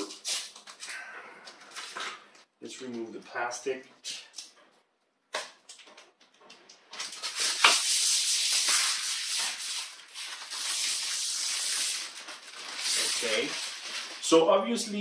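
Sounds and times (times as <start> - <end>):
plastic wrap crinkling: 5.7 - 15.0.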